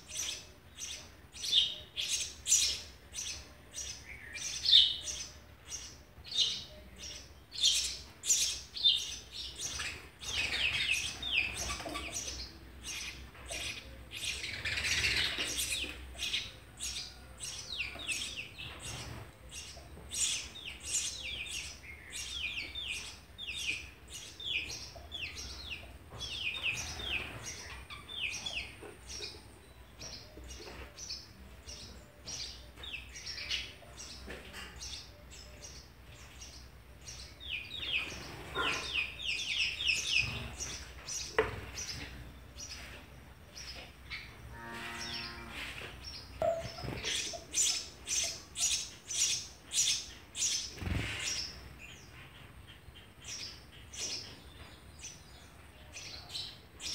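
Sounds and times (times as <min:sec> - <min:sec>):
nestlings chirping: 0:43.6 - 0:54.4.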